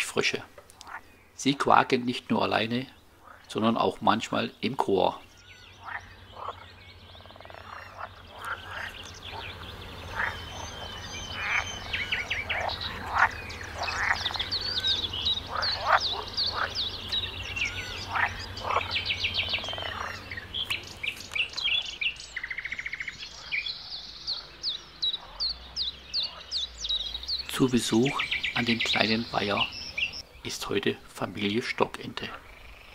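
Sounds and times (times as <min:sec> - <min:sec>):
frogs croaking in chorus: 0:00.0 - 0:32.9
high peeping chirps: 0:05.3 - 0:30.8.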